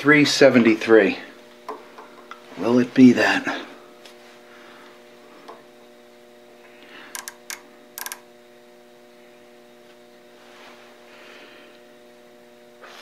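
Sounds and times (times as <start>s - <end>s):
steady hum: 0.0s - 13.0s
micrometer ratchet clicking: 7.1s - 8.2s.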